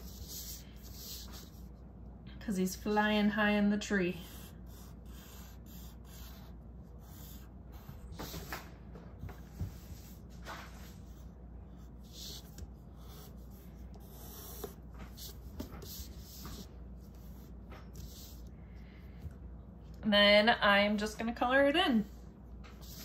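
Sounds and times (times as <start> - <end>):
pencil scratching on paper: 0.0 - 1.7, 4.1 - 8.7, 9.3 - 18.5.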